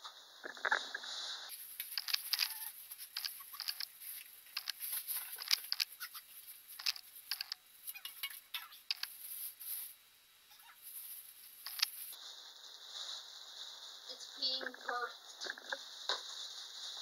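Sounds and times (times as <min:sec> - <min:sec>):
plastic bag crinkling: 0:01.5 - 0:09.9.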